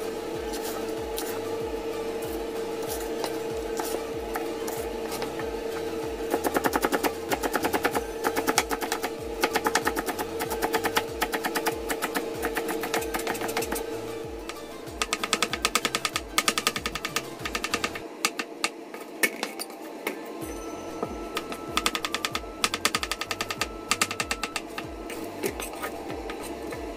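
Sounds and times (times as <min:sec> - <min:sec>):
knife chopping on cutting board: 0:06.3 - 0:18.8.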